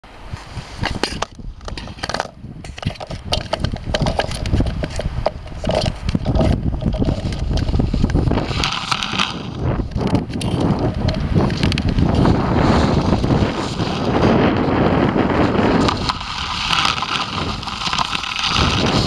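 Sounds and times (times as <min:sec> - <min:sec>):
camera rumbling over ice: 0:00.8 - 0:19.0
small clicks and ticks: 0:01.1 - 0:12.3, 0:15.8 - 0:19.0.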